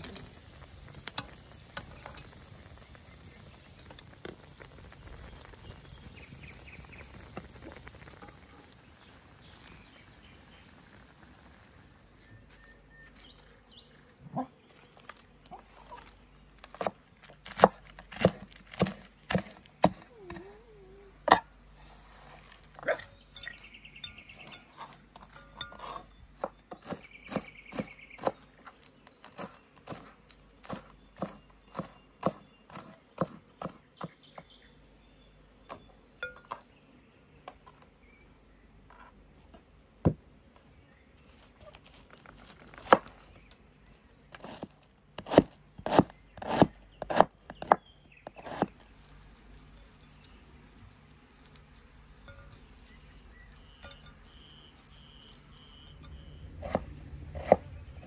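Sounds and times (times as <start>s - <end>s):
pan sizzling: 0.0s - 12.2s
knife chopping on wooden board: 16.8s - 20.1s, 29.4s - 34.1s, 45.2s - 48.7s, 56.6s - 57.6s.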